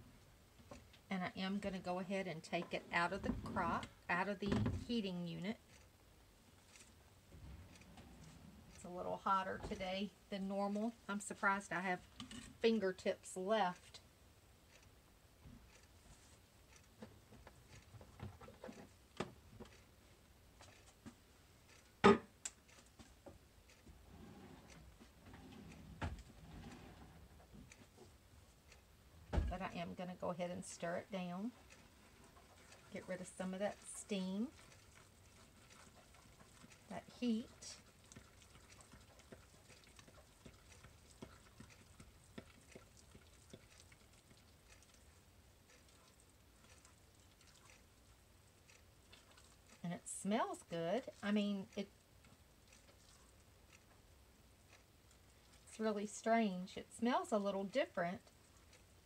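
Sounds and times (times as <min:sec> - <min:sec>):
spatula clicking and scraping: 0:12.0 - 0:12.8, 0:30.4 - 0:54.0
soap batter popping and crackling: 0:32.3 - 0:48.0.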